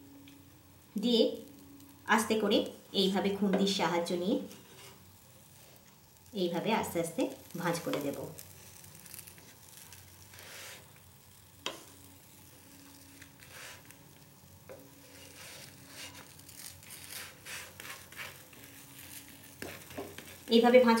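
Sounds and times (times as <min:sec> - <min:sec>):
faint sizzle on griddle: 0:00.0 - 0:21.0
metal spatula scraping griddle: 0:04.5 - 0:05.1, 0:07.4 - 0:14.0, 0:14.7 - 0:20.5.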